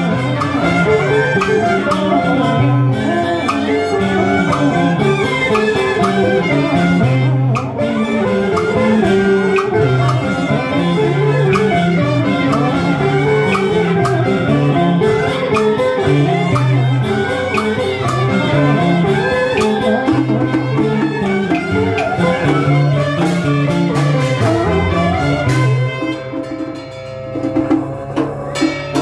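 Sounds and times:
percussion clicks: 0.0s - 26.8s
melody instruments: 0.0s - 29.0s
held low tone: 18.0s - 26.5s.

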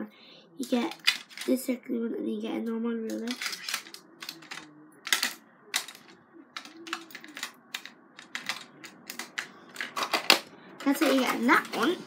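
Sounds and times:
plastic drawing tools clattering: 0.7s - 1.6s, 3.1s - 12.0s.

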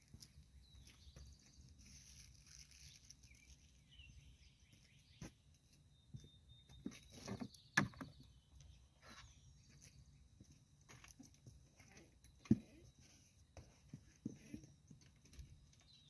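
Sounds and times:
boots walking on concrete: 0.0s - 1.8s
birds chirping and whistling: 0.6s - 10.0s.

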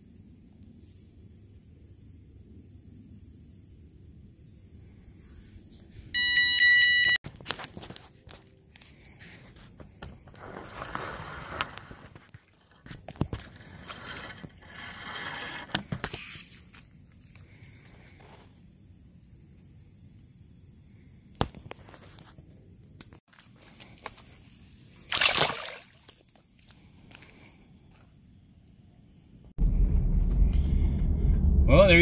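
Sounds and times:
bite alarm beep: 6.1s - 7.2s
rustling and scraping: 7.3s - 18.6s.

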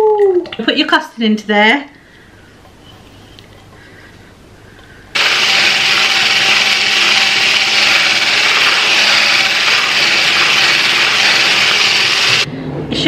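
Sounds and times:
stick blender running: 5.2s - 12.5s.

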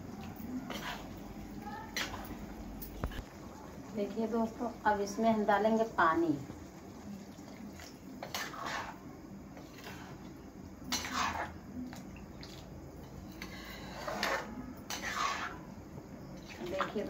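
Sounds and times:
metal spoon scraping a pan: 0.5s - 1.2s, 1.8s - 3.3s, 7.9s - 11.6s, 13.0s - 15.8s
water pouring: 6.6s - 9.0s.

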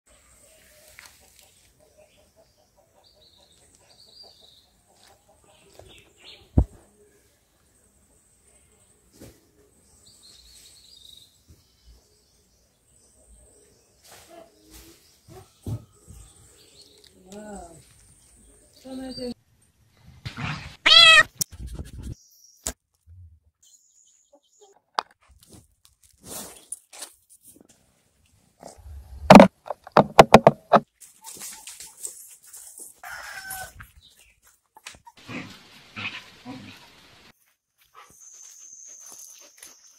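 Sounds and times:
high-pitched animal cry: 20.8s - 21.4s
loud short thump: 29.3s - 30.8s.

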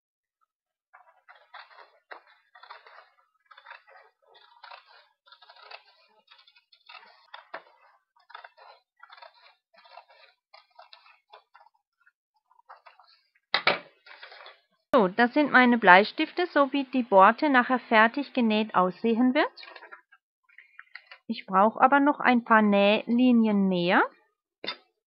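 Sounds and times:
scissors snipping paper: 1.0s - 11.8s.

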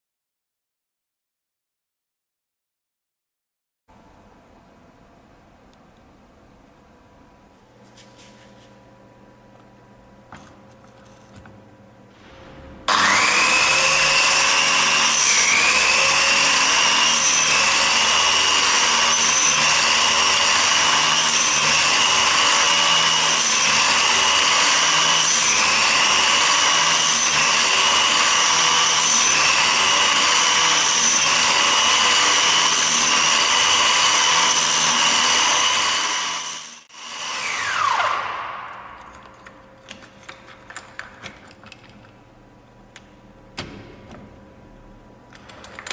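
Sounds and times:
grinding wheel motor running: 12.9s - 38.1s
motor winding down whine: 12.9s - 39.3s.

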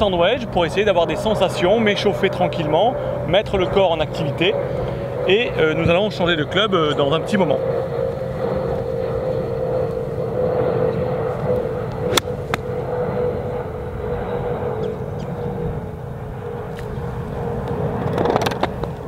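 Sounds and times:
mechanical drone: 0.0s - 19.0s
golf club striking ball: 11.9s - 12.9s.

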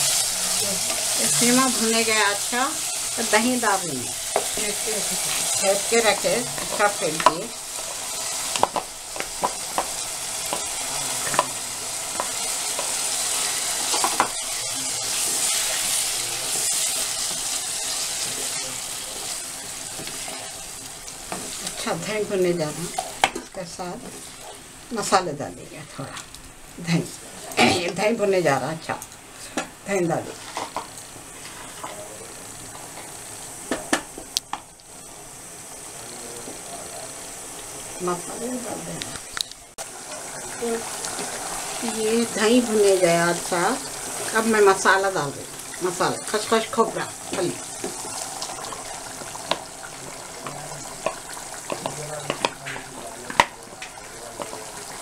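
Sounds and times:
meat sizzling in a pan: 0.0s - 25.3s, 25.9s - 55.0s
wooden spatula tapping pan: 6.1s - 7.9s, 8.5s - 11.5s, 50.4s - 52.6s, 53.3s - 53.6s.

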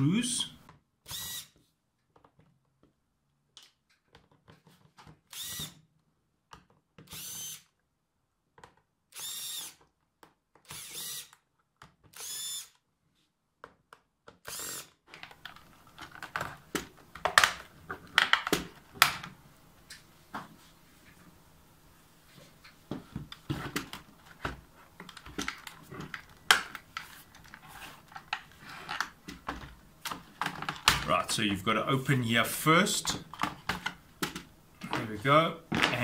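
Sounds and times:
cordless drill bursts: 1.1s - 1.6s, 5.3s - 5.8s, 7.1s - 7.7s, 9.1s - 9.8s, 10.7s - 11.4s, 12.1s - 12.8s, 14.4s - 15.0s
plastic keyboard clattering: 15.2s - 19.3s, 23.3s - 31.1s.

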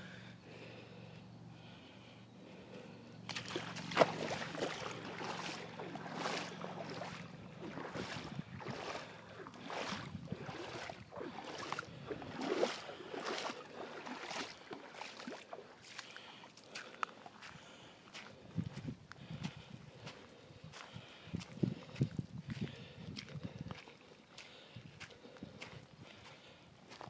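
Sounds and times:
footsteps wading through water: 3.2s - 27.0s.

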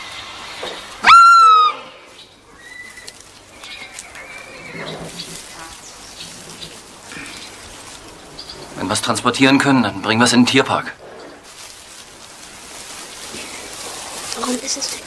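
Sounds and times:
faint thin calls: 0.0s - 15.0s
deer fawn distress bleat: 1.0s - 7.7s.

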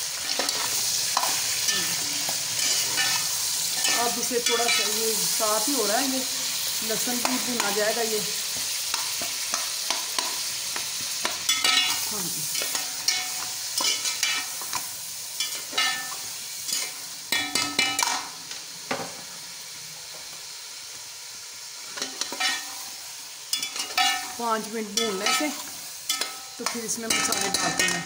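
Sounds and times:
food sizzling in hot oil: 0.0s - 28.0s
metal spatula scraping pot: 25.0s - 28.0s.

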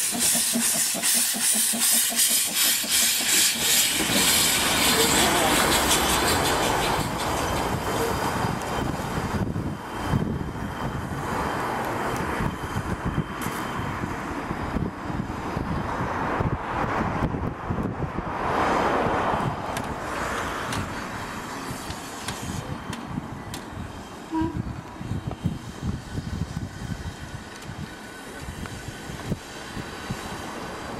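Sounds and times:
hissing steam: 0.0s - 10.2s, 20.8s - 23.1s
steam locomotive exhaust chuffs: 0.0s - 14.0s, 20.7s - 30.9s.

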